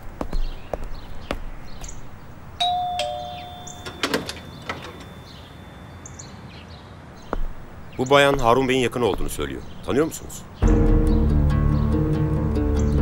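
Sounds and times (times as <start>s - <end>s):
two-note doorbell chime: 2.6s - 5.9s.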